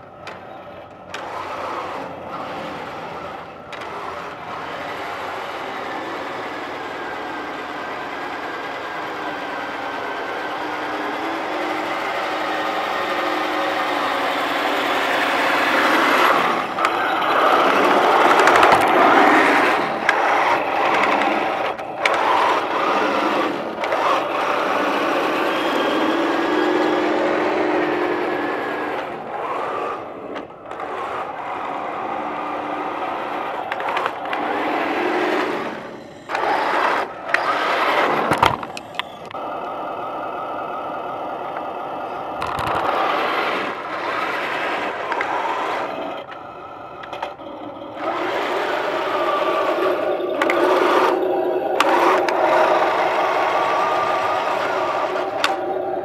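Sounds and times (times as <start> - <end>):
scattered clicks: 0.0 - 39.8, 41.0 - 56.0
simulated tank engine sound: 0.0 - 56.0
whine of drive gearing: 0.0 - 56.0
tracks clattering on concrete: 13.3 - 39.4, 42.4 - 46.4, 48.2 - 55.7.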